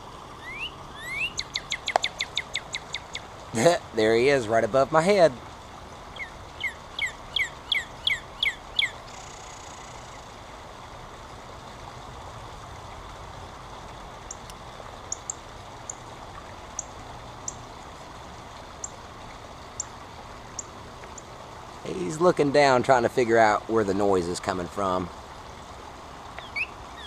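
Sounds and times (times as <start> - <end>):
bird song down-slurred whistles: 0.4 - 3.0, 6.2 - 9.0, 26.4 - 27.0.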